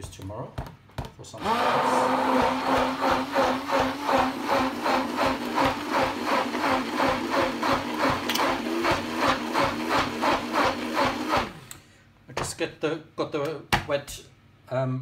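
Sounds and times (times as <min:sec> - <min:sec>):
stick blender churning: 0:01.4 - 0:11.7.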